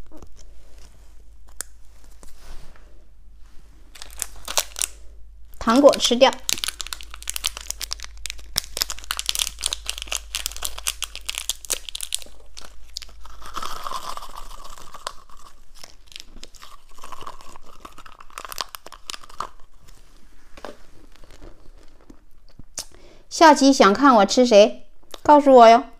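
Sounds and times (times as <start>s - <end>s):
crunching hard candies: 3.9s - 20.0s, 21.0s - 22.9s
plastic bag crinkling: 3.9s - 22.4s.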